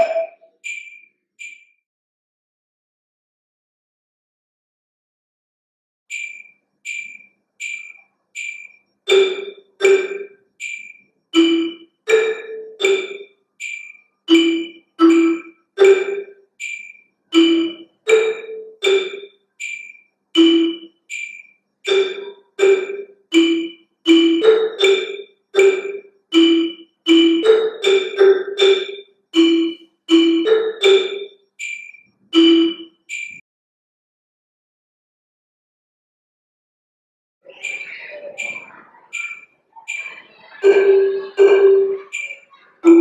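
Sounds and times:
marimba notes: 0.0 - 0.5, 9.1 - 10.3, 11.4 - 13.2, 14.3 - 16.3, 17.4 - 19.3, 20.4 - 20.9, 21.9 - 31.3, 32.4 - 32.9, 37.6 - 43.0
metronome ticking: 0.0 - 1.6, 6.1 - 33.4, 37.6 - 43.0.

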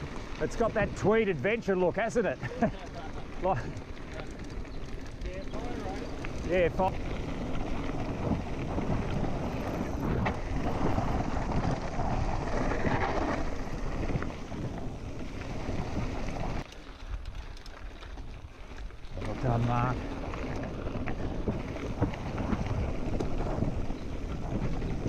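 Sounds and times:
bike tyres rolling over gravel: 0.0 - 25.0
wind on microphone: 19.6 - 25.0.

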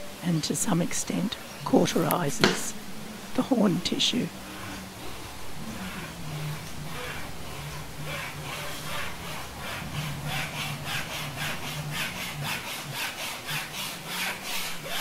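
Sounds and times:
wire sawing through horn: 4.3 - 15.0.

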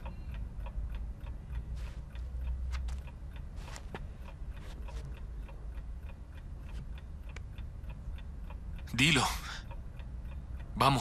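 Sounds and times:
clock ticking: 0.0 - 11.0
low room hum: 0.0 - 11.0.

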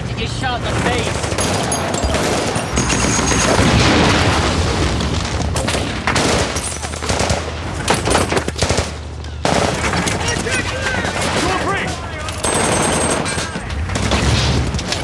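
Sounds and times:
sharp gunshots: 1.0 - 14.9
explosion: 1.4 - 6.6
automatic gunfire: 5.6 - 14.8.

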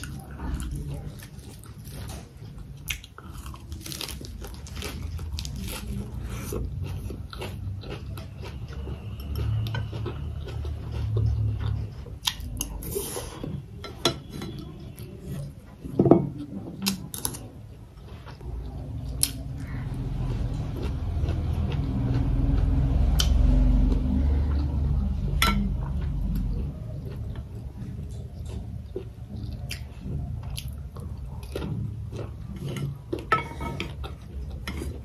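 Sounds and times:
chewing and mouth sounds: 0.0 - 35.0
metal spoon scraping porcelain bowl: 32.6 - 34.0.

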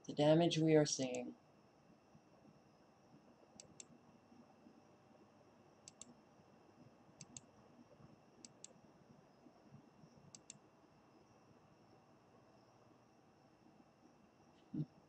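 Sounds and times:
computer mouse button clicks: 5.9 - 6.1.

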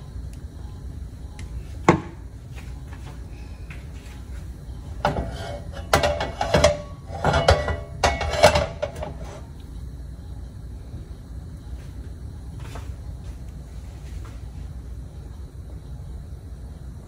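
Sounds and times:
metal wok scraping on stovetop: 5.0 - 9.5.

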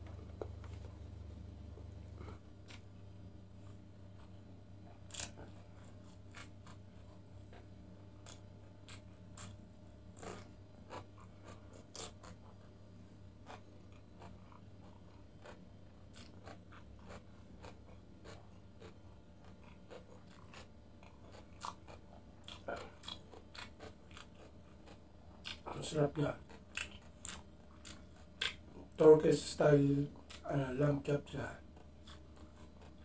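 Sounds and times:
chewing and mouth smacks: 4.1 - 12.7, 13.4 - 25.7, 26.4 - 29.0, 30.2 - 30.5, 31.6 - 33.0.

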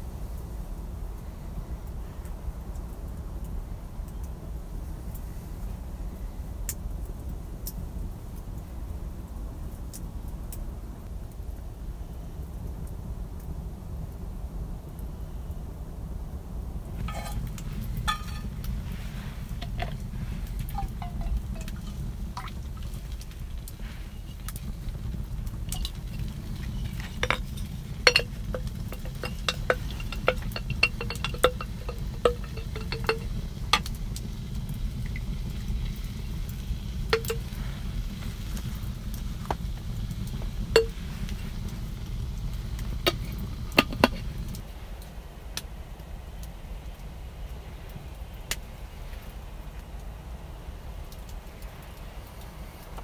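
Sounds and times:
utensils tapping a metal pan: 17.1 - 18.9, 19.6 - 23.2, 25.7 - 33.9, 37.2 - 37.5, 40.8 - 41.0, 43.1 - 44.2.

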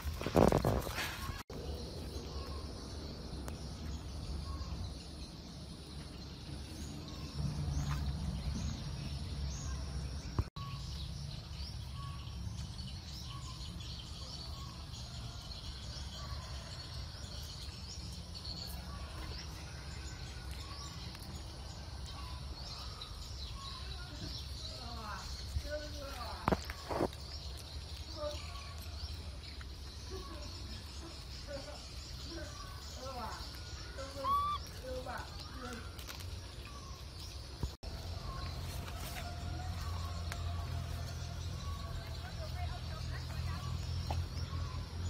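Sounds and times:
small birds chirping: 0.0 - 45.0.

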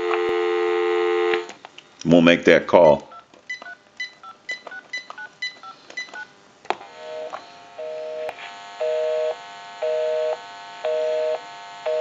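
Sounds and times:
two-tone busy signal: 0.0 - 1.5, 8.8 - 12.0.

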